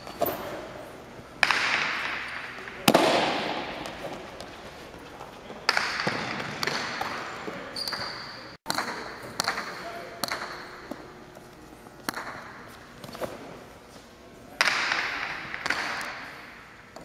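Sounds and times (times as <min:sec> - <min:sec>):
ball cracking against court walls: 0:01.4 - 0:04.8.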